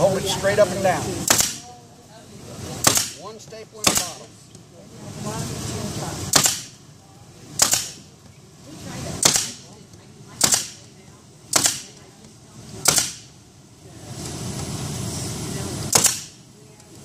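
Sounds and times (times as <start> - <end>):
pneumatic stapler firing: 1.2 - 1.7, 2.8 - 3.2, 3.8 - 4.3, 6.3 - 6.8, 7.6 - 8.0, 9.2 - 9.7, 10.4 - 10.8, 11.5 - 12.0, 12.8 - 13.3, 15.9 - 16.4.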